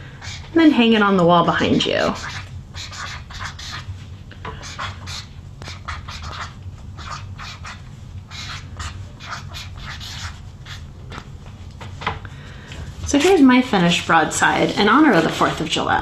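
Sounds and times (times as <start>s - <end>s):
marker writing on paper: 2.0s - 3.9s, 4.5s - 10.9s.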